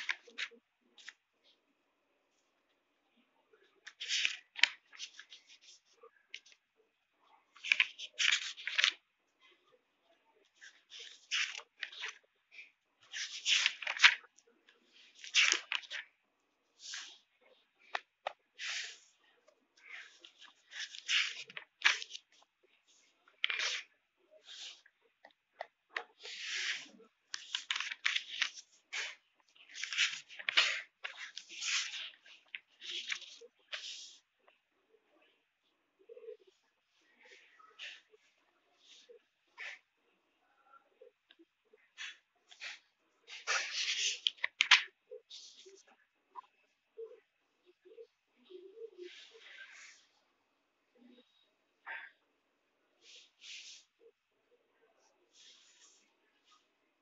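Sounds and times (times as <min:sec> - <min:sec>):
book pages turning and rustling: 0:00.0 - 0:01.2, 0:03.8 - 0:06.6, 0:07.5 - 0:09.0, 0:10.4 - 0:16.2, 0:16.8 - 0:19.2, 0:19.8 - 0:34.6, 0:41.3 - 0:45.9.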